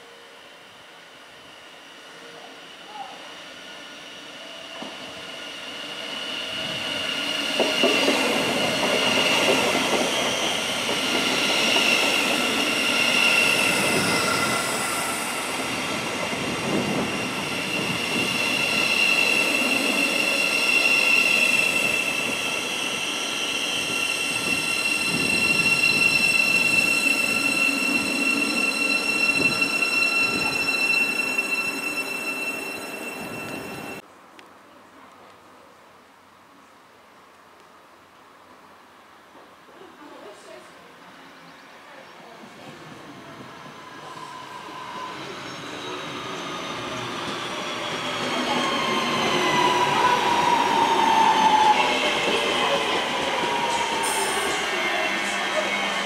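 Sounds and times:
high-pitched train whine: 0.0s - 34.0s, 42.5s - 56.0s
train wheels on rails: 4.6s - 34.0s, 42.4s - 56.0s.

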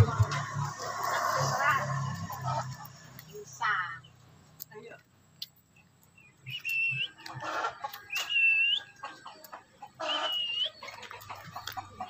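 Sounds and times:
whistled bird notes: 6.2s - 9.0s, 10.0s - 11.0s
harsh bird squawks: 9.9s - 11.0s.

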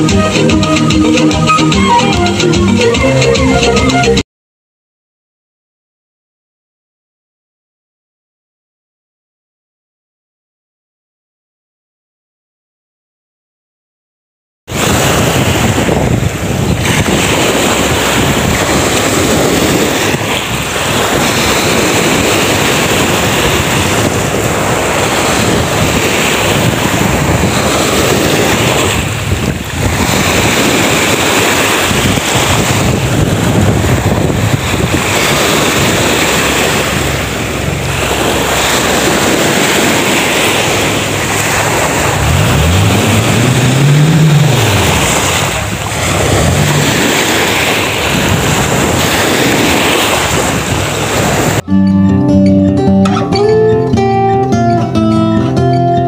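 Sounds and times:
wind noise on microphone: 0.0s - 4.2s, 14.7s - 56.0s
small waves washing on shore: 14.7s - 51.7s
low rising and falling tone: 41.6s - 47.0s, 51.6s - 55.7s.

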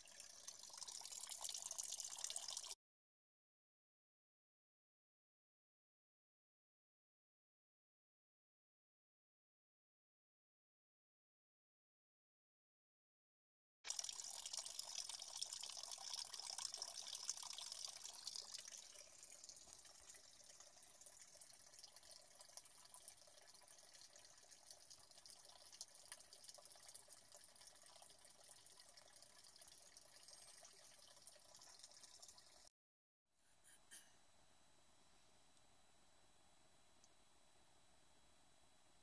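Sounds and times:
water pouring and splashing: 0.0s - 2.8s, 13.9s - 32.7s.

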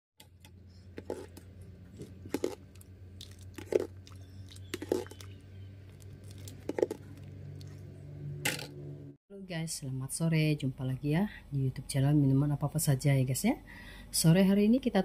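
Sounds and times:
porridge bubbling and plopping: 0.2s - 7.9s
steady low hum: 0.2s - 10.0s.

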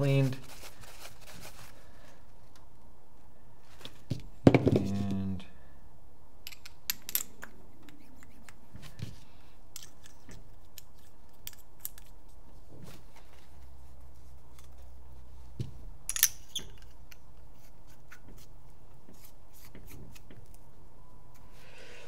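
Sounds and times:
paper towel rustling: 0.0s - 2.4s.

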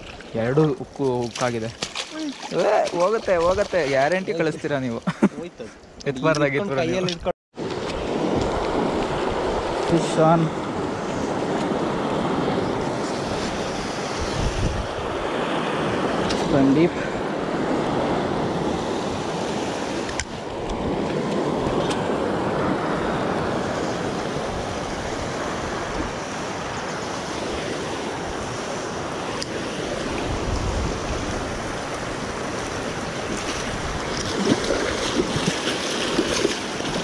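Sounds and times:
water rushing over rapids: 18.0s - 37.0s.

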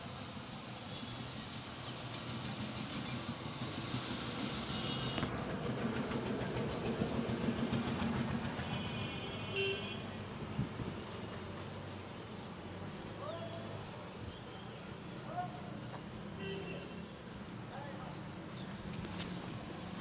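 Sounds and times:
street noise: 0.0s - 20.0s
motor vehicle passing: 2.3s - 14.2s.

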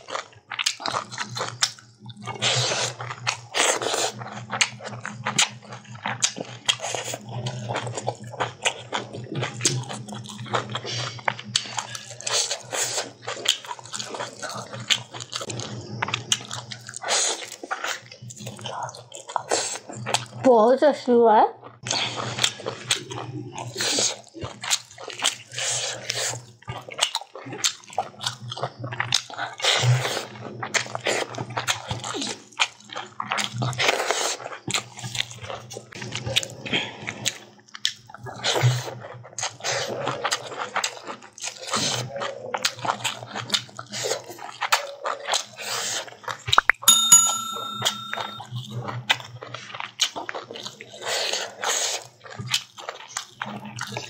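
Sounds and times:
chewing and lip-smacking: 0.0s - 20.4s, 21.6s - 46.6s, 49.1s - 54.0s
short ringing tone: 46.9s - 48.5s.

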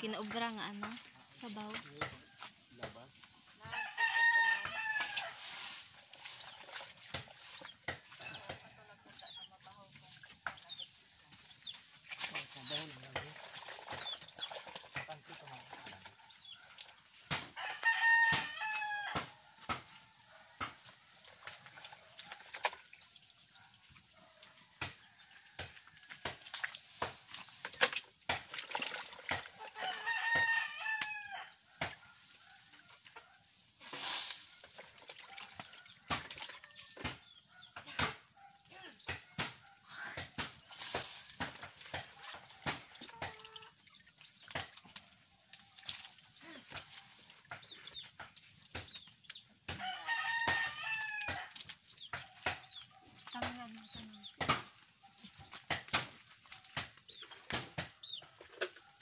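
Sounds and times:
rooster crowing: 3.6s - 5.5s, 17.6s - 20.2s, 29.6s - 31.6s, 49.8s - 51.6s.

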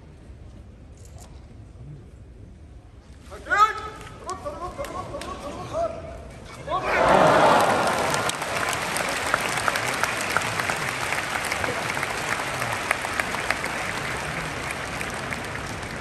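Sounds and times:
crowd applauding: 6.9s - 16.0s.

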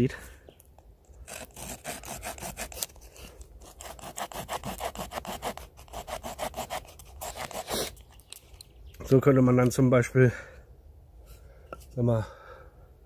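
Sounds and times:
small saw cutting wood: 1.2s - 8.0s.

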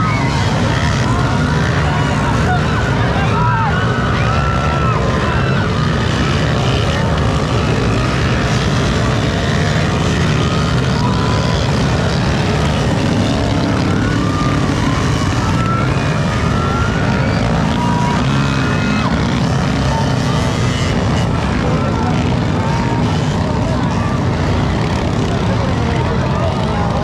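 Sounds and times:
dirt bike engines revving: 0.0s - 27.0s.

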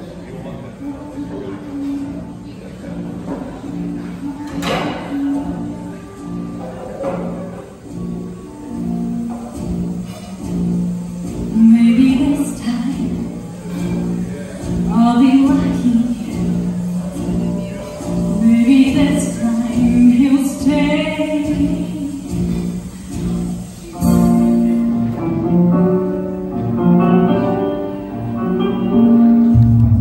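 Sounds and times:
instrumental accompaniment: 0.4s - 30.0s
woman singing: 11.5s - 13.3s, 14.9s - 16.5s, 18.3s - 22.4s.

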